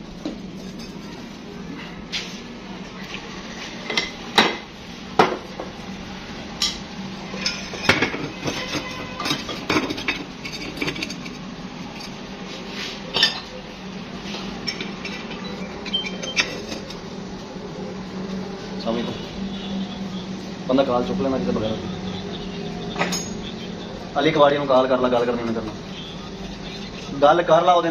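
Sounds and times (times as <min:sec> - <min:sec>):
metal clanks and clinks: 0:07.3 - 0:12.2, 0:14.6 - 0:17.0, 0:23.0 - 0:23.4.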